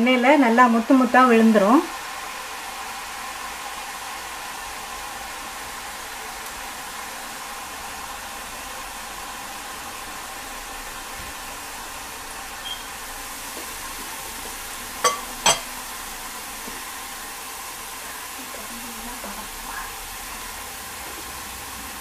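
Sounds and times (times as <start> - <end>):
batter frying in hot oil: 0.0 - 22.0
metal ladle clinks: 15.1 - 15.7.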